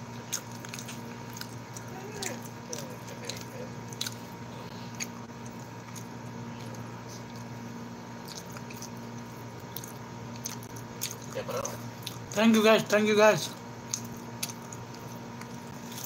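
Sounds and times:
man chewing food: 0.0 - 16.0
steady low hum: 0.0 - 16.0.

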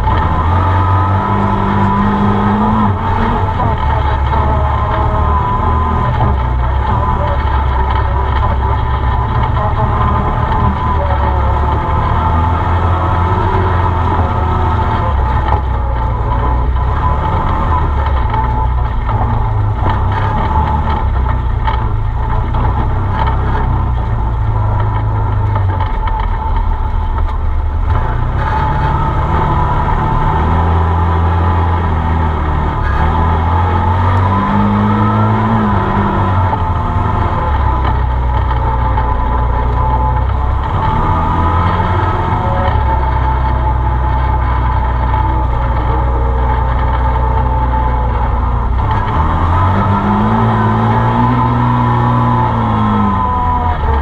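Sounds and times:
vehicle engine running: 0.0 - 54.0.

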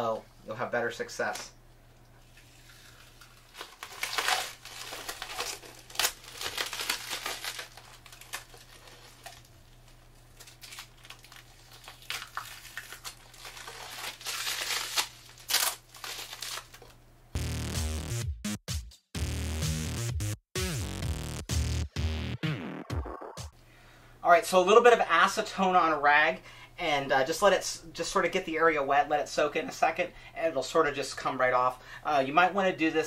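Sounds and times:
tape peeling and crumpling: 2.4 - 17.0.

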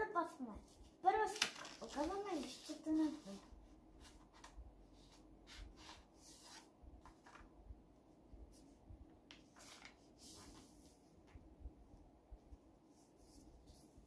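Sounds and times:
paper rustling and folding: 0.7 - 7.5, 9.3 - 11.4.

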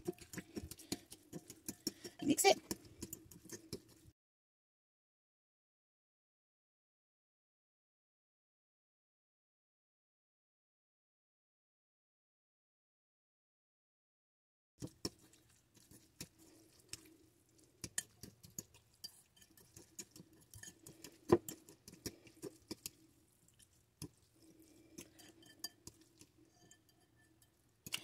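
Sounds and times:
plastic fork scraping bowl: 0.0 - 4.1, 14.8 - 28.0.

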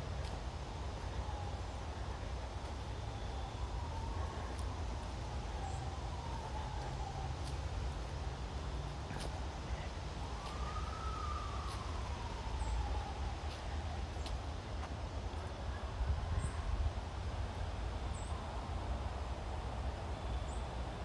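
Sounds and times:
highway traffic rumble: 0.0 - 21.0
siren wailing: 3.1 - 8.1, 10.2 - 14.0.

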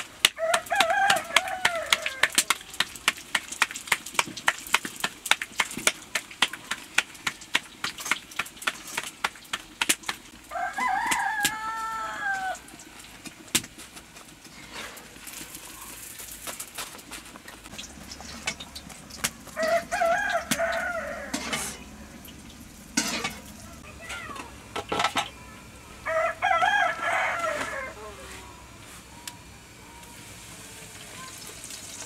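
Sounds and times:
rooster crowing: 0.4 - 2.6, 10.5 - 12.7, 19.5 - 22.0, 26.0 - 28.5.

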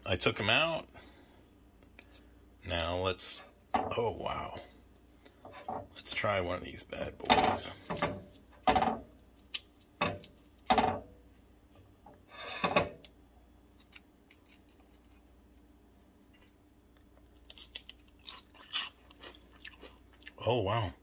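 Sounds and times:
potato chip crunching: 13.8 - 15.6, 17.2 - 20.5.

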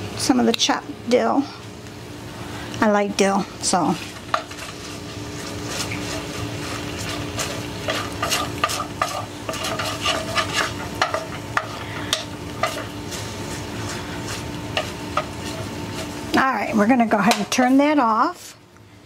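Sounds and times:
sauce sizzling in skillet: 1.6 - 18.6
spoon scraping and tapping pan: 7.0 - 13.0, 14.7 - 16.1.

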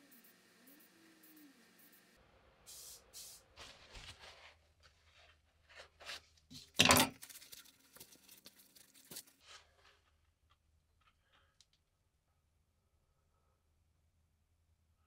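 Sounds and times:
paper towel rustling: 3.2 - 10.0.

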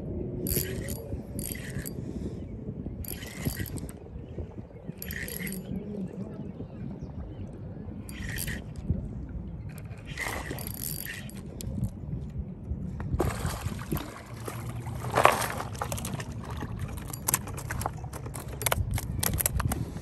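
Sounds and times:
water splashing and sloshing: 8.1 - 12.0, 13.0 - 20.0
clicks and crunches on gravel: 14.9 - 19.9.

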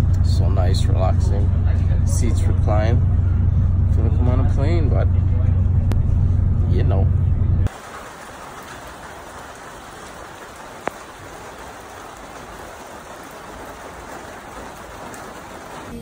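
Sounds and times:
rain falling on wet street: 7.7 - 16.0.

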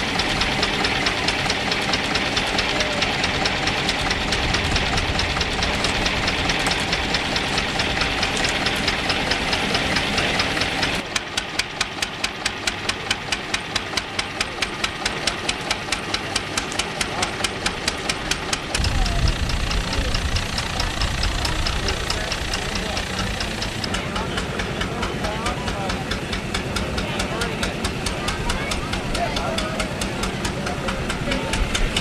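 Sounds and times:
stationary engine running: 0.0 - 32.0
loud steady hiss: 16.8 - 23.9.

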